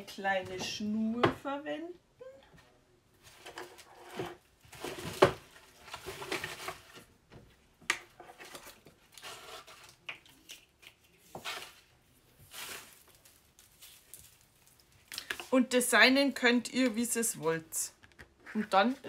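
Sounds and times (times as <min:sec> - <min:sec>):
rummaging rustling: 0:03.2 - 0:07.2, 0:11.3 - 0:15.6.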